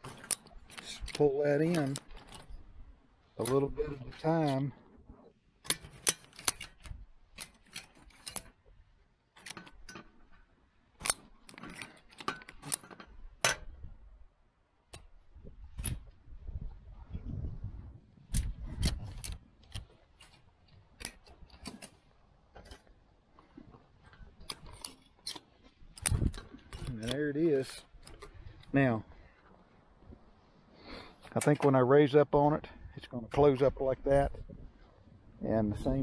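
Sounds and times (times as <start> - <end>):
ratchet strap clicking: 5.6 - 8.6, 18.3 - 20.4, 24.4 - 27.2.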